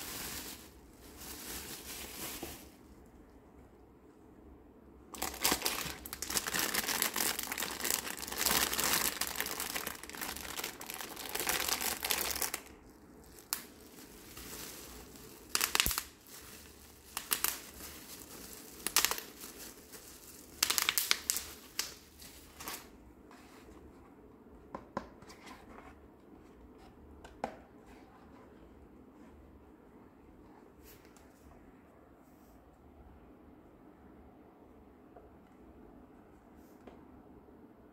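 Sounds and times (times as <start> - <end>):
plastic packaging crinkling: 0.0 - 2.9, 5.1 - 23.0.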